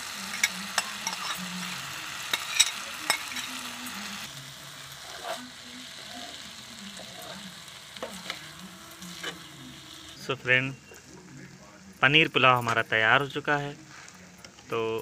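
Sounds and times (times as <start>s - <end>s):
rice sizzling: 0.0s - 15.0s
spoon stirring rice in pan: 0.2s - 3.8s, 4.9s - 9.5s.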